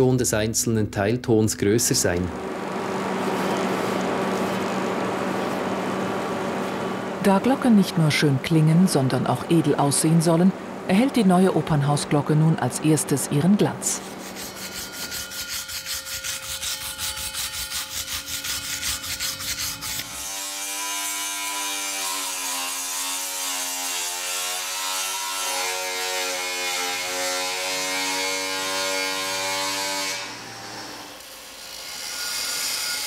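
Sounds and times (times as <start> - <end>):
rotary power tool whine: 2.4 - 7.0, 19.8 - 33.0
rhythmic rasping rub on metal: 13.9 - 30.4.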